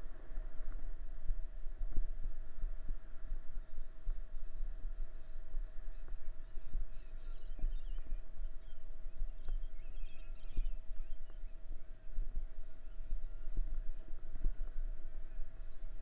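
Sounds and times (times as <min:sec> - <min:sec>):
faint steady tone: 0:00.0 - 0:16.0
birds chirping: 0:03.6 - 0:14.2.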